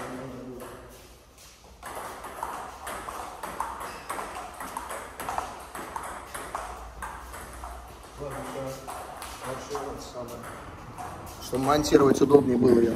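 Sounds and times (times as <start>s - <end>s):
table tennis ball ticking: 1.8s - 12.0s.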